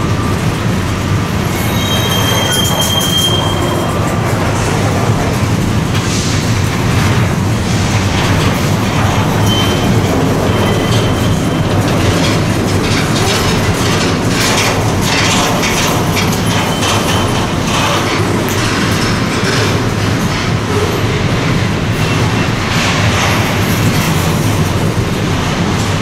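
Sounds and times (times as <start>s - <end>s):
train rumbling over rails: 0.0s - 26.0s
train wheels clicking: 0.0s - 26.0s.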